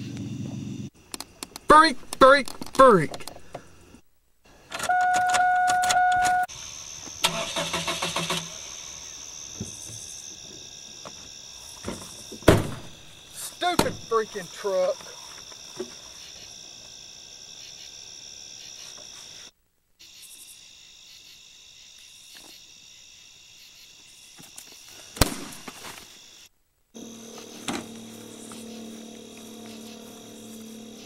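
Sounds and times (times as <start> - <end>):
crickets chirping: 0.0 - 31.0
vehicle engine running: 27.0 - 31.0.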